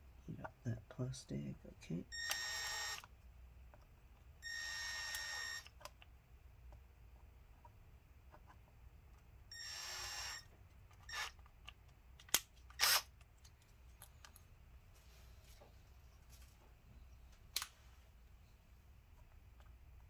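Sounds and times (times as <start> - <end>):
plastic clicks and snaps: 11.4 - 14.4.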